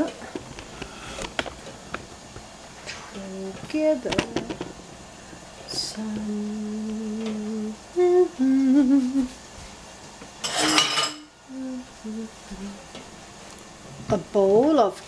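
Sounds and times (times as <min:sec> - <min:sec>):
woman humming: 0:05.7 - 0:09.4, 0:11.4 - 0:13.0.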